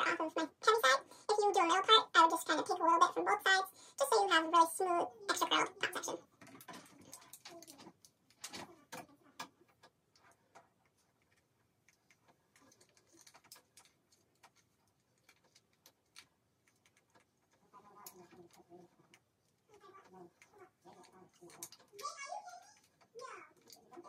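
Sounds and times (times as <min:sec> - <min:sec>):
curling iron clicks and rustles: 0:05.3 - 0:24.0.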